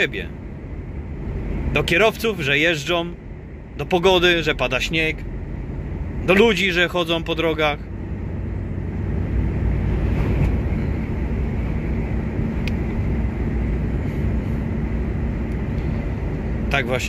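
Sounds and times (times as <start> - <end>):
road noise rumble: 0.0 - 17.0
truck diesel engine running: 0.0 - 17.0.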